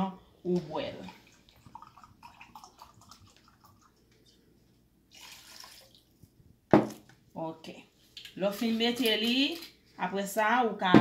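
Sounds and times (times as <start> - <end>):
liquid splashing into a bowl: 1.0 - 4.2, 5.1 - 6.2.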